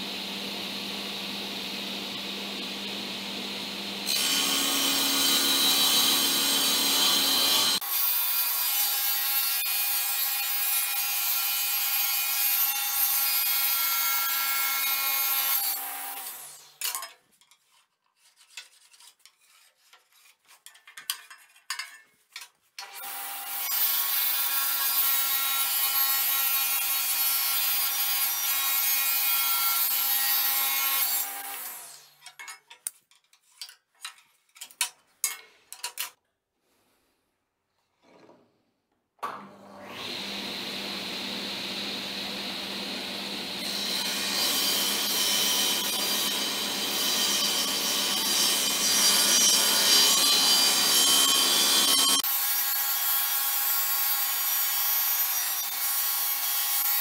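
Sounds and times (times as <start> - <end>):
table saw whining: 4.0 - 16.9, 39.3 - 57.0.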